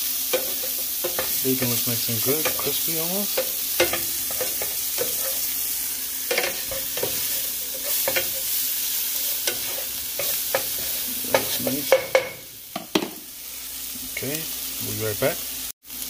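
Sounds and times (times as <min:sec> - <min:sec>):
food sizzling in a hot pan: 0:00.0 - 0:16.0
utensil scraping against pan: 0:00.3 - 0:05.6, 0:06.3 - 0:13.1.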